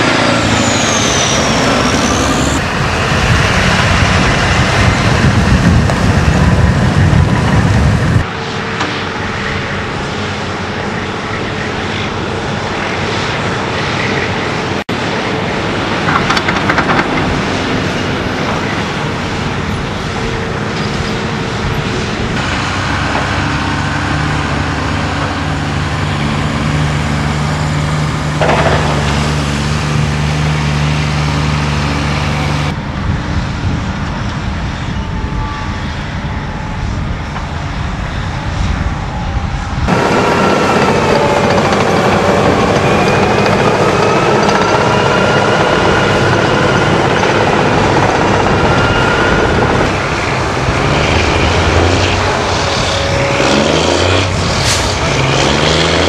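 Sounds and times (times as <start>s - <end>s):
truck engines idling: 0.0s - 12.5s, 14.9s - 32.8s, 39.9s - 56.0s
excavator diesel engine running: 0.0s - 33.0s, 35.1s - 56.0s
vehicle passing with low rumble: 45.3s - 56.0s.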